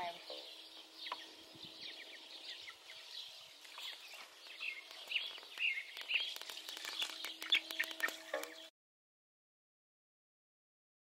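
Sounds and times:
chicks peeping: 0.0 - 8.7.

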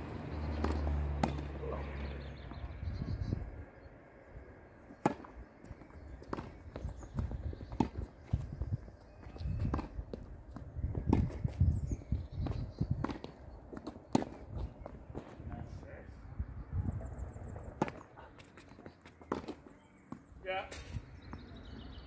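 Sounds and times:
footsteps on court: 5.0 - 11.6.

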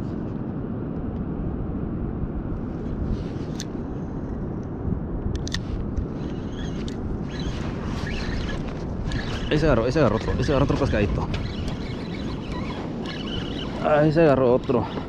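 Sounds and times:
fishing reel clicks: 8.1 - 15.0.

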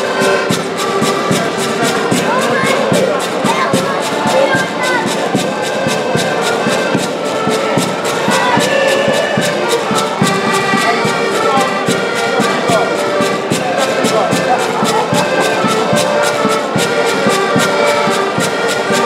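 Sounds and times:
accordions playing a tune: 0.0 - 19.0
regular pulsing beat: 0.0 - 19.0.

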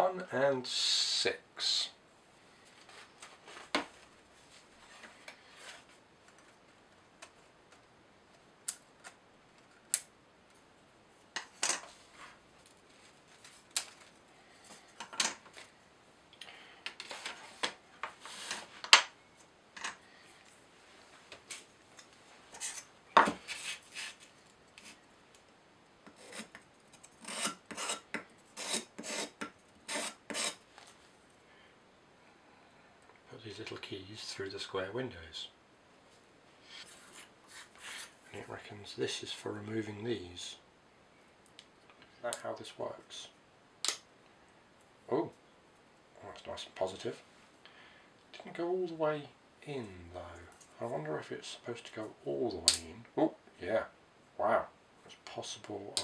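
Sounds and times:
sandpaper rubbing wood: 27.2 - 28.0, 28.6 - 30.6.

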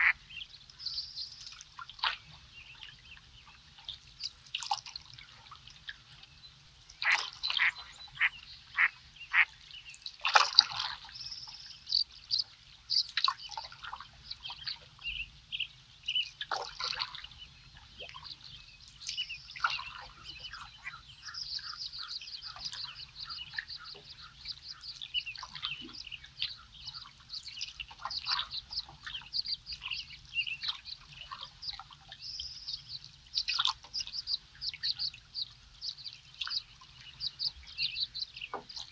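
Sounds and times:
sharp bird calls: 0.0 - 1.4, 7.0 - 9.6, 19.0 - 38.9
birds chirping and trilling: 0.0 - 38.9.

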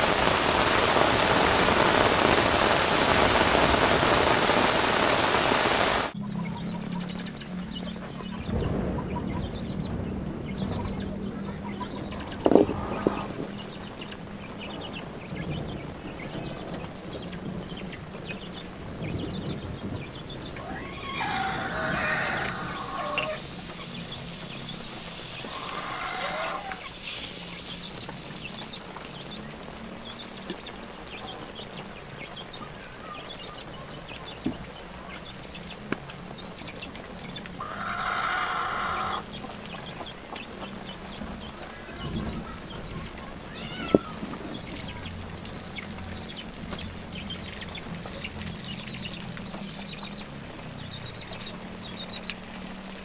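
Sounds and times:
steady hiss: 0.0 - 6.2, 9.6 - 53.0
wood fire crackling: 0.0 - 6.2, 12.1 - 33.2, 39.3 - 53.0
chickens calling: 4.8 - 53.0.

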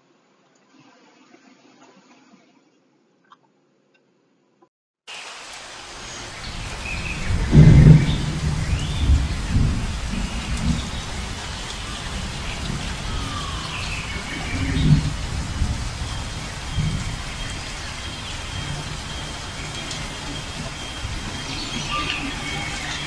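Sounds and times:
heavy rain falling: 5.1 - 23.0
thunder rolling: 6.1 - 23.0.

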